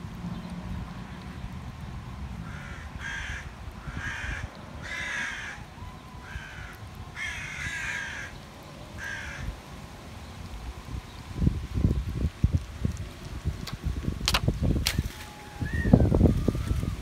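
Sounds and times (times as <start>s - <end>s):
crow cawing: 2.4s - 8.4s, 9.0s - 9.5s.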